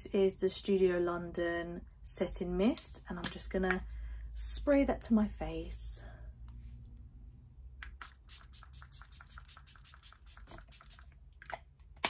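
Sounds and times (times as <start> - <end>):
spray bottle spritzing: 8.0 - 11.1.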